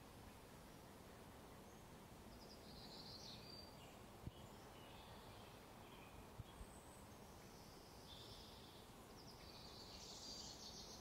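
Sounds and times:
faint background hiss: 0.0s - 11.0s.

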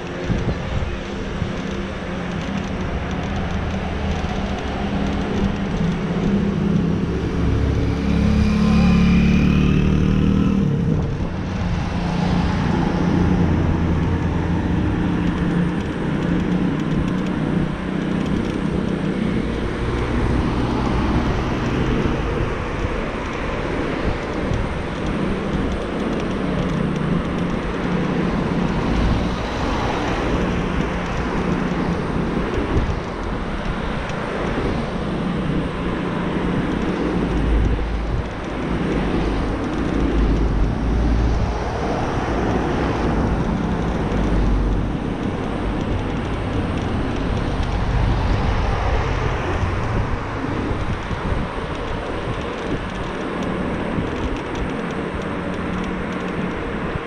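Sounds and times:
road and wind noise: 0.0s - 57.0s
car traffic passing: 0.9s - 16.8s.

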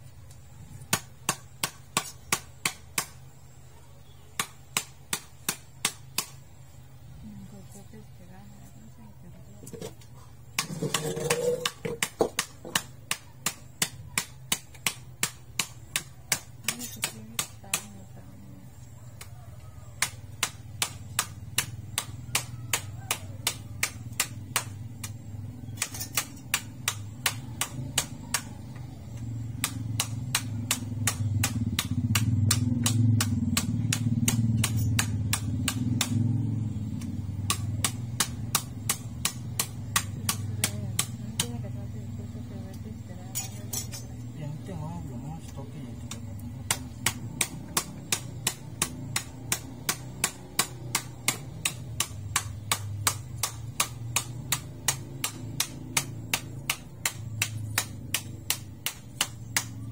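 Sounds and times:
low background rumble: 0.0s - 59.9s
knife chopping on wooden board: 10.5s - 17.9s, 20.0s - 28.6s, 29.2s - 36.8s, 46.1s - 59.9s.

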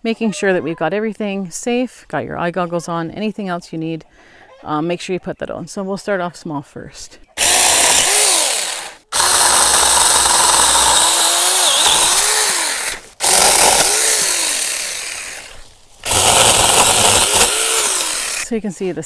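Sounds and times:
electric chainsaw cutting branches: 7.4s - 18.5s.

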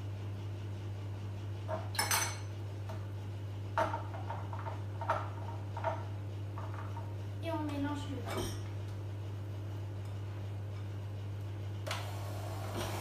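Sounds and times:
glasses and cutlery clinking: 1.9s - 2.5s.

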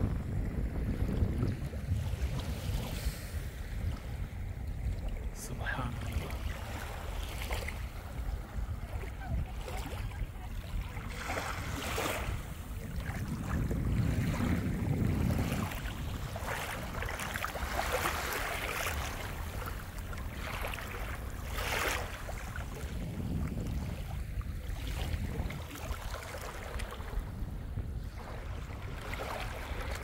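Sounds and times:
wind rumbling on microphone: 0.0s - 30.0s
waves washing onto sand: 1.8s - 30.0s.

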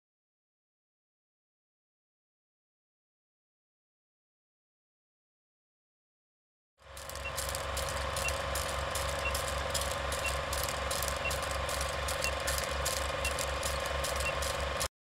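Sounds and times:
mechanical clicking and whirring: 6.8s - 14.9s.

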